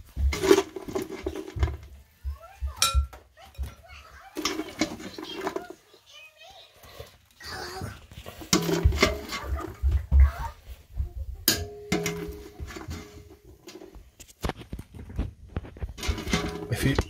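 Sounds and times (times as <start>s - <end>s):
pan clanking and ringing: 2.8s - 3.7s, 11.5s - 13.4s, 16.0s - 17.0s
metal spoon scraping a saucepan: 16.0s - 17.0s.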